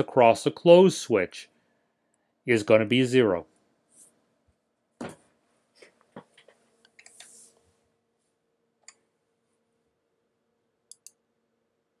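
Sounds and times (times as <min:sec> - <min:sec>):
faint computer clicks: 0:10.9 - 0:11.2.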